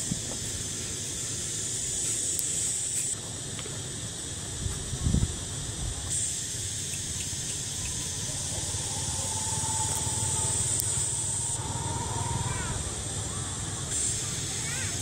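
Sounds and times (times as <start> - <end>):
high-pitched insect drone: 0.0 - 15.0
low rumble: 7.7 - 13.6.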